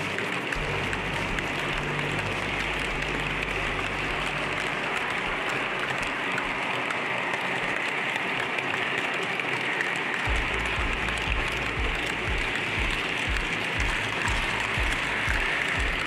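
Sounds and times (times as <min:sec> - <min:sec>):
low hum: 0:00.0 - 0:06.6, 0:10.3 - 0:16.0.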